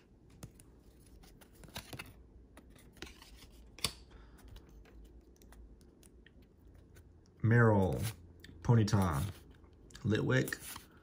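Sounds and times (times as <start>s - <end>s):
cards clicking and scraping: 0.3s - 7.1s.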